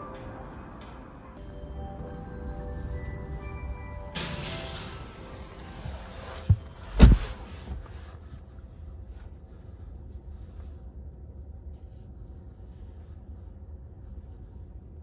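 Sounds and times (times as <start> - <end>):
low steady hum in car cabin: 5.3 - 15.0
dull thumps: 6.3 - 8.0.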